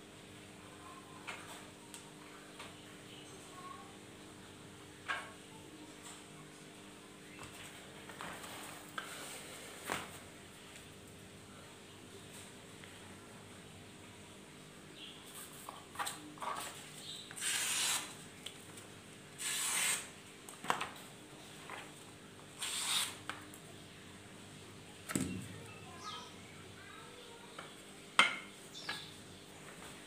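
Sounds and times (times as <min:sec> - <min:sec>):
blade slicing paper: 0:17.4 - 0:18.2, 0:19.4 - 0:20.1, 0:22.6 - 0:23.2
sharp knocks of knife handling: 0:28.2 - 0:29.1.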